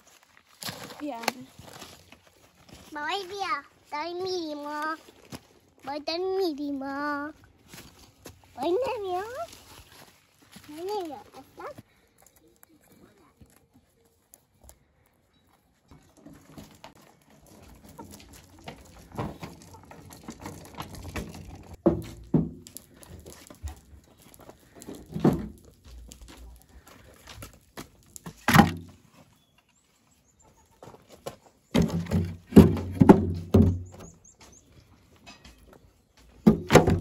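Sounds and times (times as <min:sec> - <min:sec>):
wood knocking against metal wheelbarrow: 0:15.9 - 0:23.8, 0:24.8 - 0:25.8, 0:28.2 - 0:29.0, 0:31.7 - 0:34.1, 0:35.2 - 0:37.0.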